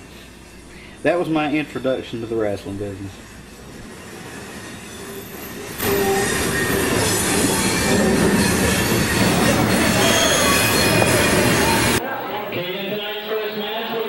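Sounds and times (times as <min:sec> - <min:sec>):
thin high squealing tones: 0:00.5 - 0:12.0.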